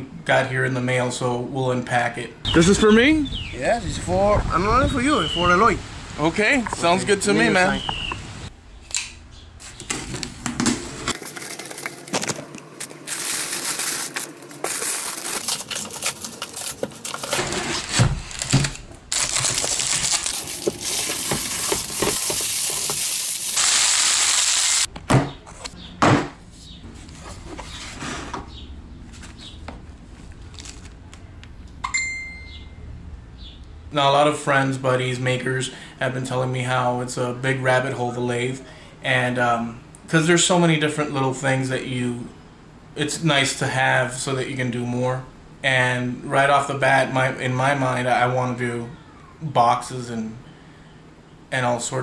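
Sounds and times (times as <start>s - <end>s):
cardboard and plastic rustling: 9.8s - 23.6s, 30.0s - 31.0s.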